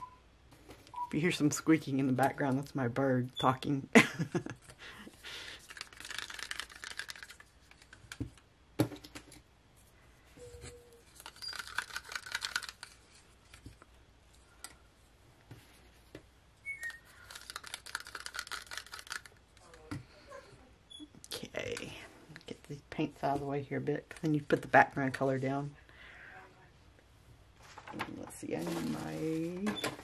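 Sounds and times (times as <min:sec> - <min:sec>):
sticks clicking against plastic cups: 0:11.1 - 0:13.9, 0:16.7 - 0:19.9
bird squeaking: 0:16.6 - 0:17.2.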